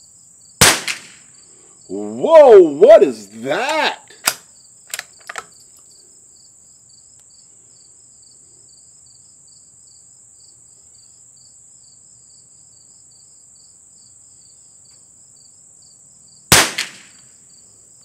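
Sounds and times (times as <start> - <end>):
cricket chirping: 0.0 - 18.0
sharp clicks: 4.2 - 5.5
insects buzzing: 4.2 - 18.0.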